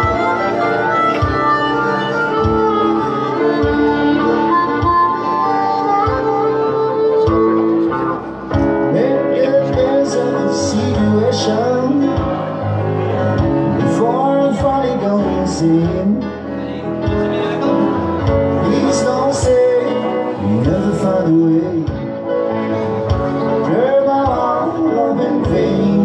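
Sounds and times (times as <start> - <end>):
harmonica bending in pitch: 0.0 - 8.5
steady beat: 0.0 - 8.9
guitar: 0.0 - 26.0
keyboard: 0.0 - 26.0.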